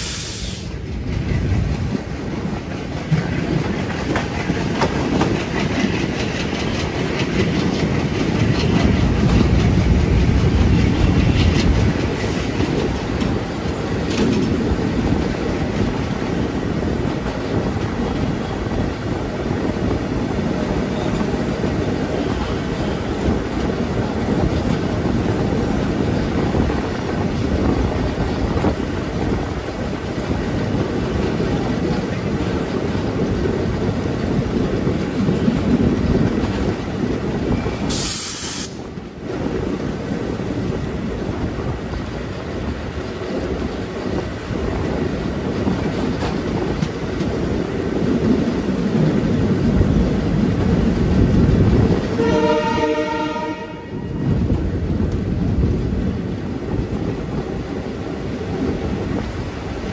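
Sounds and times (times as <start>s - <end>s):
burst of hiss: 0.0s - 0.8s, 37.9s - 38.8s
wheel-on-rail noise: 0.6s - 59.9s.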